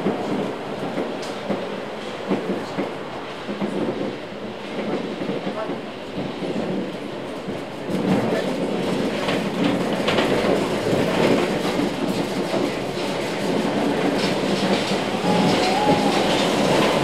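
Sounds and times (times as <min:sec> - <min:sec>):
tram wheels rumbling on rails: 0:00.0 - 0:17.0
rail clicks: 0:10.1 - 0:17.0.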